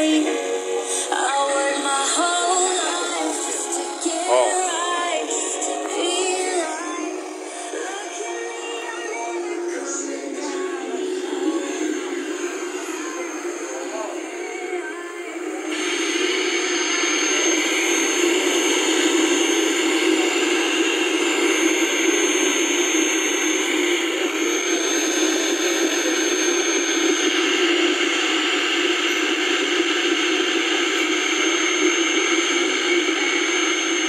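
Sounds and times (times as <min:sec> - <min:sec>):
radio static hiss: 0:00.0 - 0:34.0
thin high whine: 0:00.0 - 0:34.0.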